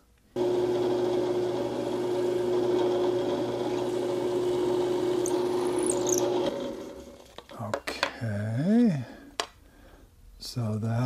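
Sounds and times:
drill bit drilling into wood: 0:00.4 - 0:06.9
drill press motor humming: 0:00.4 - 0:07.2.

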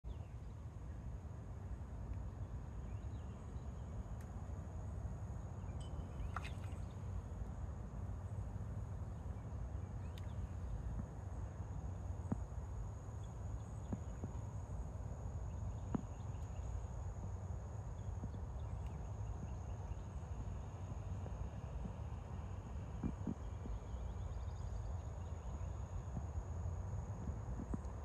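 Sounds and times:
faint ticks: 0:10.0 - 0:11.2, 0:27.1 - 0:28.0.

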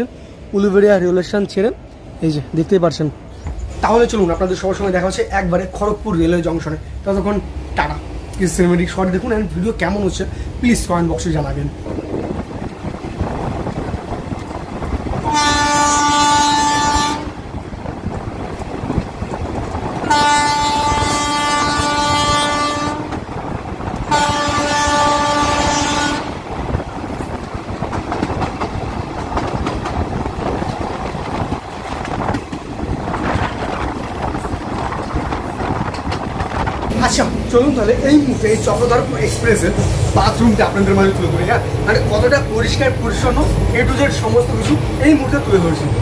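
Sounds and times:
train coaches rumbling on rails: 0:00.0 - 0:46.0
train horn blasts: 0:15.2 - 0:17.4, 0:20.0 - 0:23.3, 0:24.0 - 0:26.4.

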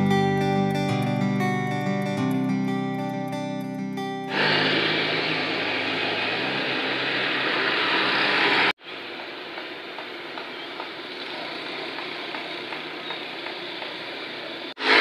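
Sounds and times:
vehicle engine noise: 0:04.3 - 0:15.0
steady traffic hum: 0:04.4 - 0:14.8.

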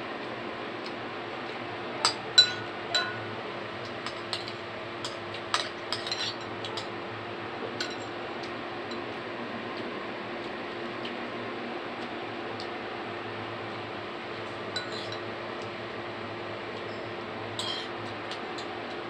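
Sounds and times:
metal spoon clinking on a bowl: 0:02.1 - 0:03.3, 0:04.1 - 0:06.9, 0:14.8 - 0:15.2, 0:17.6 - 0:17.9.

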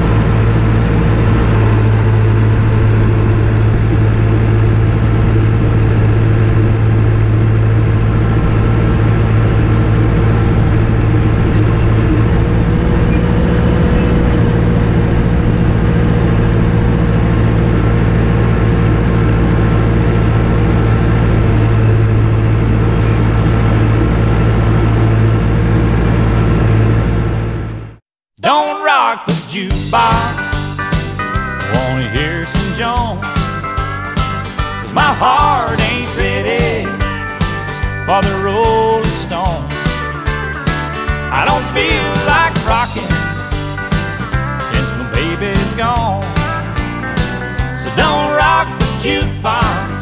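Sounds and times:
tractor diesel engine running: 0:00.0 - 0:28.1, 0:29.7 - 0:50.0.

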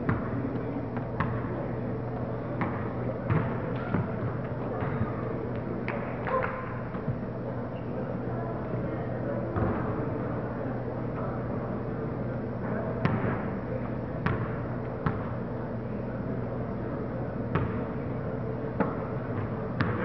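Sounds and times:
basketball bouncing on wood floor: 0:02.6 - 0:05.1, 0:19.8 - 0:20.0.

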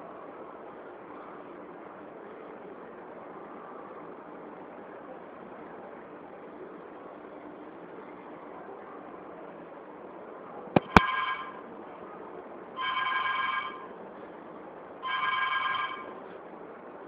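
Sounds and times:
sharp clicks: 0:10.8 - 0:11.1
phone ringing: 0:10.8 - 0:11.6, 0:12.8 - 0:13.9, 0:15.0 - 0:16.2.

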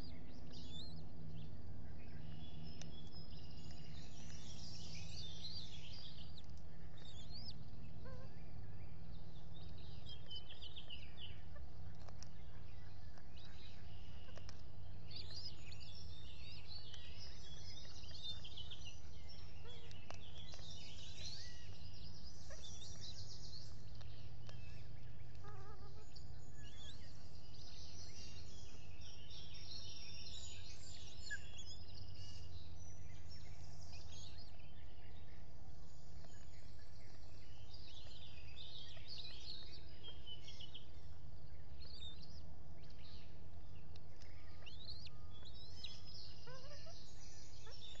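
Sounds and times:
birds singing and chirping: 0:00.0 - 0:48.0
low rumble of outdoor noise: 0:00.0 - 0:48.0.

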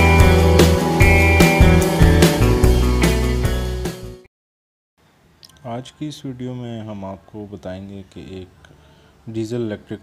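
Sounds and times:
background music with steady beat: 0:00.0 - 0:04.2.

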